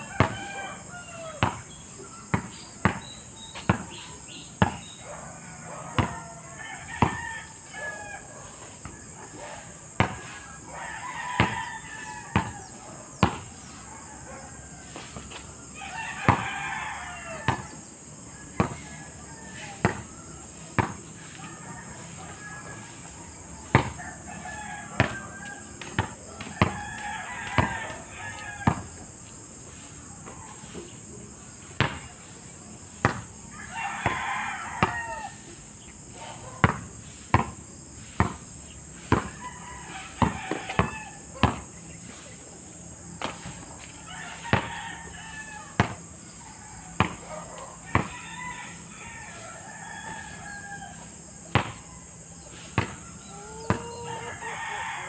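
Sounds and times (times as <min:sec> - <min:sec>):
rooster crowing: 0:00.0 - 0:29.1, 0:33.0 - 0:37.2, 0:38.9 - 0:42.4, 0:43.3 - 0:55.0
basketball bouncing on court: 0:00.2 - 0:00.4, 0:01.4 - 0:01.7, 0:02.3 - 0:04.0, 0:04.6 - 0:04.9, 0:06.0 - 0:06.2, 0:07.0 - 0:07.2, 0:10.0 - 0:10.3, 0:11.4 - 0:11.6, 0:12.3 - 0:12.6, 0:13.2 - 0:13.5, 0:17.5 - 0:17.7, 0:18.6 - 0:18.8, 0:19.8 - 0:20.1, 0:20.7 - 0:21.0, 0:23.7 - 0:24.0, 0:25.0 - 0:25.2, 0:25.8 - 0:26.8, 0:27.5 - 0:27.7, 0:28.6 - 0:28.9, 0:31.8 - 0:32.1, 0:33.0 - 0:33.3, 0:36.6 - 0:37.6, 0:38.2 - 0:38.4, 0:39.1 - 0:39.4, 0:40.2 - 0:41.7, 0:45.8 - 0:46.0, 0:47.0 - 0:47.3, 0:47.9 - 0:48.1, 0:51.5 - 0:51.8, 0:52.8 - 0:53.0, 0:53.7 - 0:53.9.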